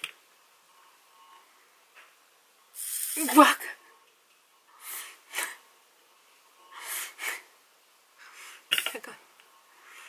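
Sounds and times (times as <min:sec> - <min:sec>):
beads hissing in spinning bowl: 0:02.8 - 0:03.6.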